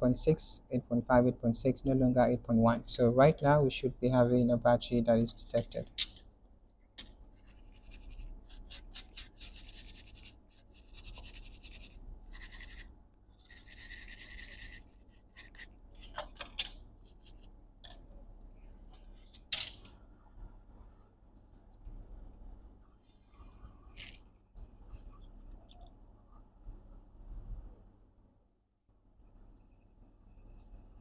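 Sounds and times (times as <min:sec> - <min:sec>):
brush scrubbing circuit board: 0:07.3 - 0:15.8, 0:17.0 - 0:17.5.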